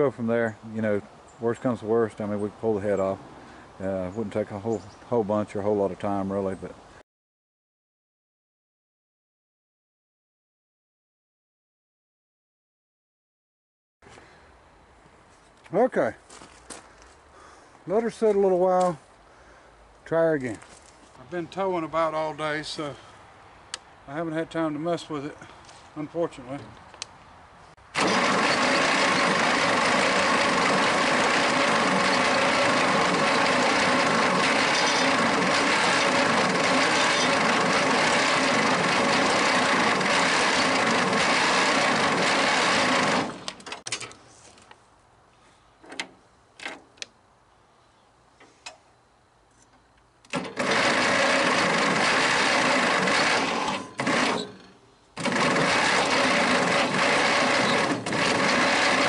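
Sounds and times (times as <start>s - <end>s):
engine cranking on starter: 27.9s - 43.9s, 50.3s - 59.0s.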